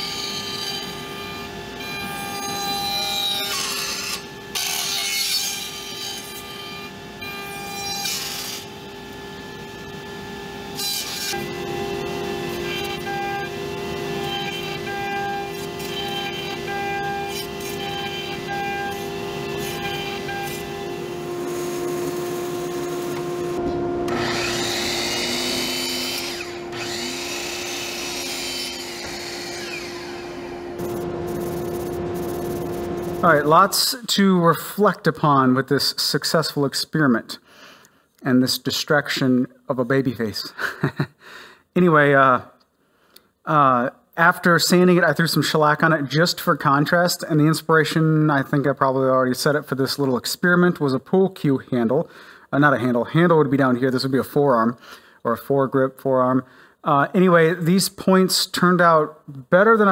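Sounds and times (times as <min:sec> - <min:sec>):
router bit cutting wood: 0:00.0 - 0:33.6
band saw running: 0:00.0 - 0:33.7
cnc spindle whine: 0:00.0 - 0:33.8
saw blade winding down: 0:02.5 - 0:06.4, 0:10.5 - 0:33.5.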